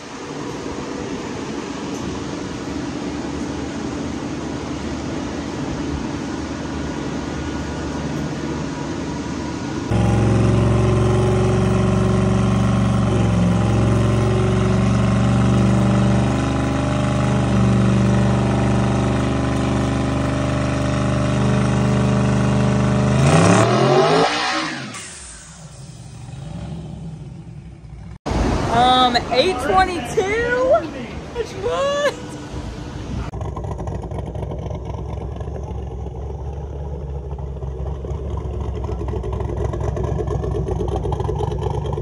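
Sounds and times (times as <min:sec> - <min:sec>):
engine running and revving: 0:09.8 - 0:28.3, 0:33.2 - 0:42.0.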